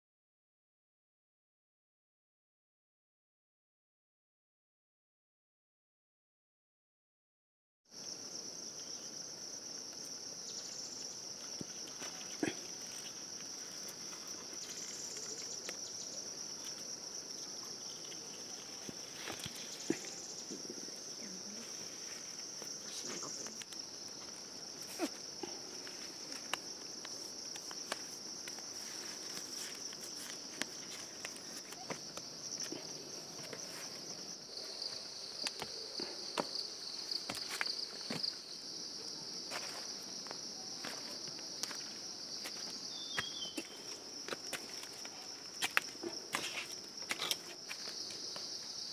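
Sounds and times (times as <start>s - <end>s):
insect chorus drone: 7.9s - 48.9s
footsteps on stony path: 24.1s - 34.1s, 34.9s - 38.4s, 39.5s - 48.6s.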